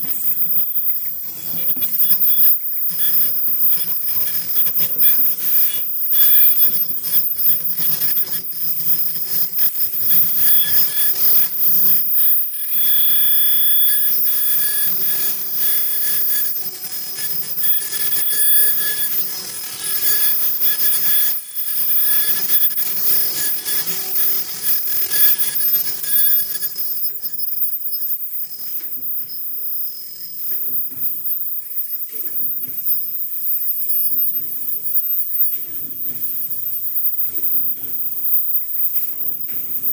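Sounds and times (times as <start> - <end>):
high-pitched machine whine: 0.0 - 39.9.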